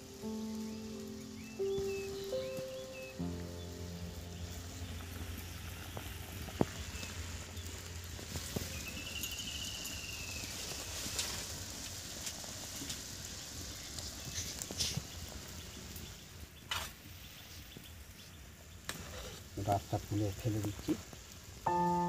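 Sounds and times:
low hum: 0:03.2 - 0:10.2
syrup boiling and bubbling: 0:03.4 - 0:21.7.

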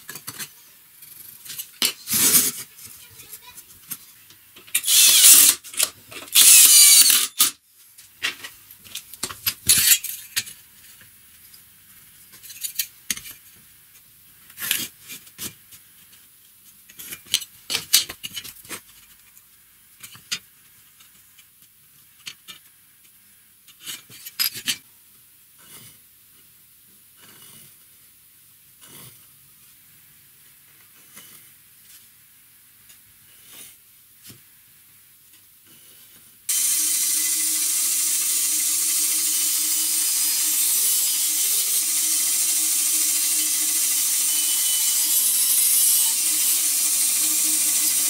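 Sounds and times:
cordless drill driving screw: 0:04.8 - 0:05.6, 0:06.3 - 0:07.5, 0:36.5 - 0:48.0.

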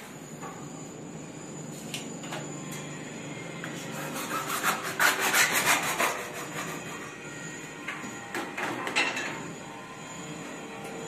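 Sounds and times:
hacksaw cutting plastic pipe: 0:04.0 - 0:06.9.

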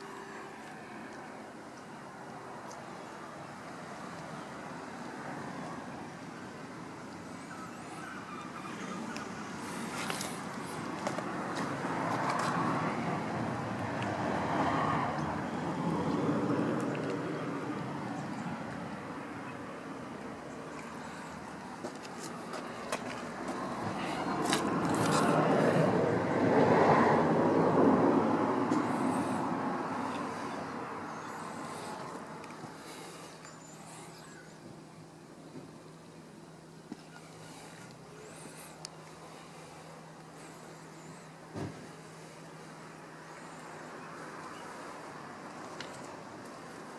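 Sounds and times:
road traffic passing: 0:00.0 - 0:46.9
passing vehicle rushing: 0:22.4 - 0:34.0.

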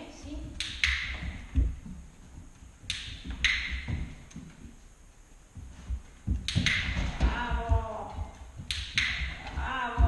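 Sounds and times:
low thuds: 0:00.2 - 0:04.8, 0:05.4 - 0:10.0
sharp taps on wooden floor: 0:06.2 - 0:10.0.

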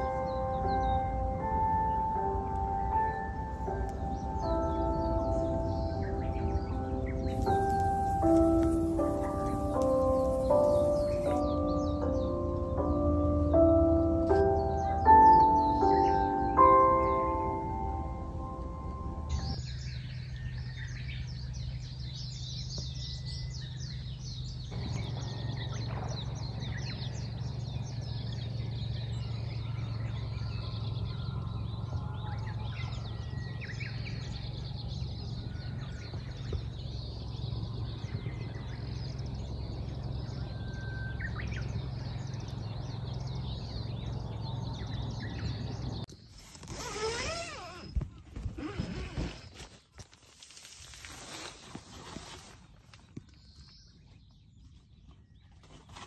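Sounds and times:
birds chirping: 0:00.0 - 0:56.0
swooping bird calls: 0:03.7 - 0:13.6
rustling: 0:07.3 - 0:11.4, 0:46.3 - 0:53.2.

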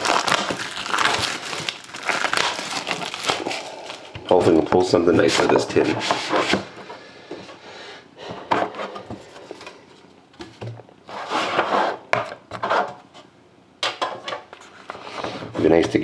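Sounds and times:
cardboard box scraping: 0:11.1 - 0:12.0.

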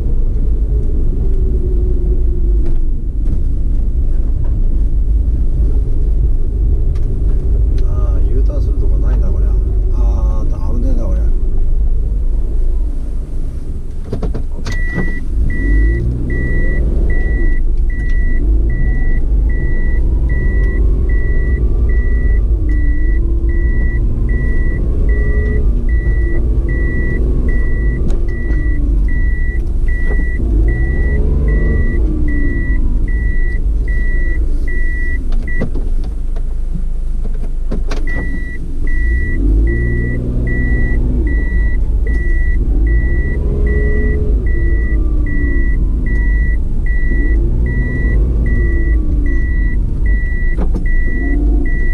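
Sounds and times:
car engine running: 0:00.0 - 0:51.9
regular electronic beep: 0:14.8 - 0:35.6, 0:38.1 - 0:51.9.

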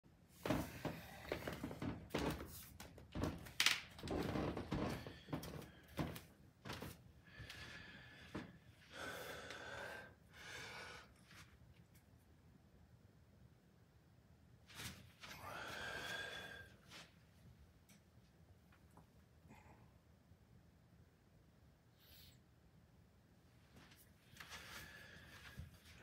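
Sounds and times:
man breathing effortfully: 0:00.4 - 0:01.9, 0:04.8 - 0:11.4, 0:15.3 - 0:17.1, 0:24.4 - 0:26.0.

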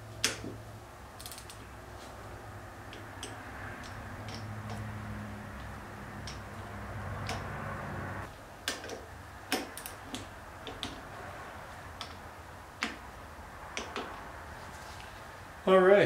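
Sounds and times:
torque wrench clicking: 0:01.2 - 0:01.6, 0:08.6 - 0:11.0.

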